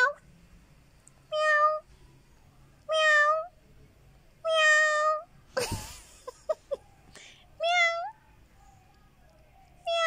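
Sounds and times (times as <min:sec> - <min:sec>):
kitten meowing: 0:02.9 - 0:03.5.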